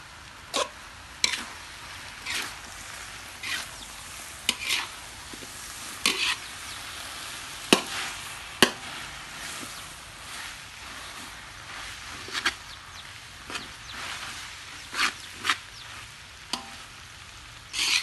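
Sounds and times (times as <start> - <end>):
food sizzling in a wok: 0.0 - 18.0
metal spatula scraping and clanking: 0.6 - 1.5, 2.2 - 2.6, 3.4 - 3.8, 4.4 - 6.5, 7.7 - 12.7, 13.4 - 15.6, 16.5 - 16.9, 17.7 - 18.0.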